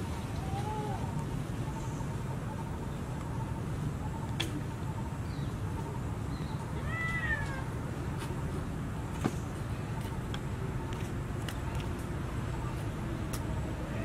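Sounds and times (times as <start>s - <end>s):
monkey coo call: 0.0s - 7.8s.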